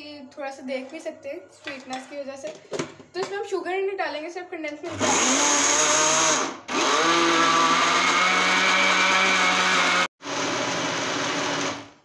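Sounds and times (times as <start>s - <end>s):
blender motor grinding: 4.9s - 12.0s.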